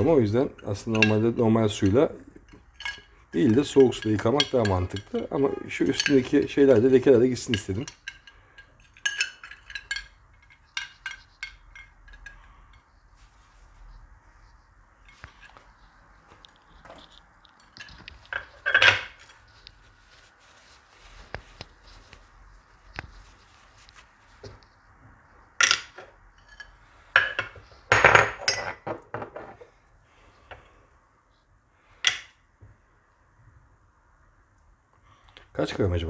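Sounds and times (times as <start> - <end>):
glass dish clinking on stone: 26.5 - 28.9.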